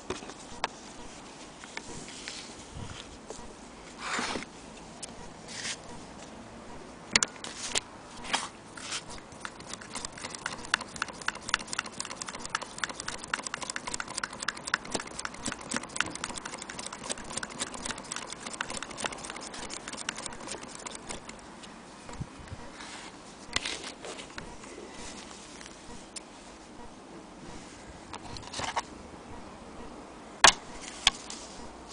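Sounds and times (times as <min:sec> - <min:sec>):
sewing machine clicking: 0:09.2 - 0:21.4.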